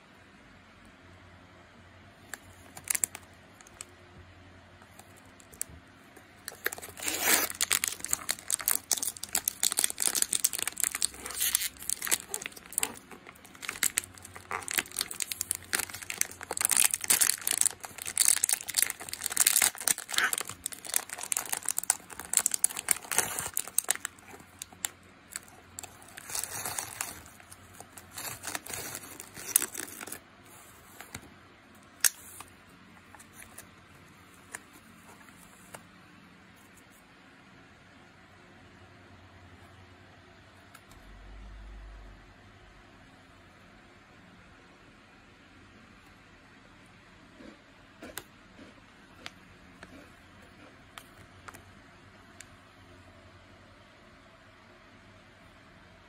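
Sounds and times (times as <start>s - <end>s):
plastic wrapper crinkling and tearing: 2.3s - 3.9s, 6.4s - 31.2s.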